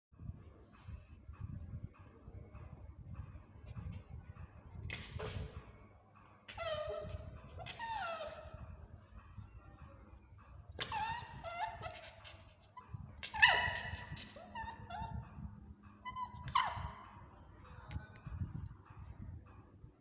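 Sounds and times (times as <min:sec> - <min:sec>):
puppy whining: 0:06.5 - 0:08.8, 0:10.7 - 0:15.4, 0:16.0 - 0:17.3.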